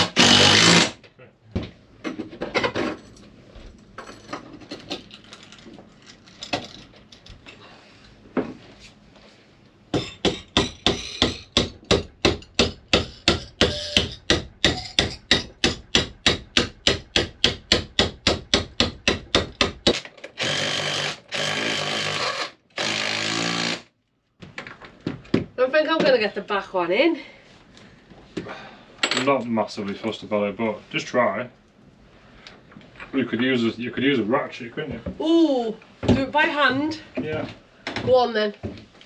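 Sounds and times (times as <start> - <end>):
cordless drill boring into timber: 0.0 - 1.0, 20.4 - 23.9
hammer blows: 9.9 - 20.0.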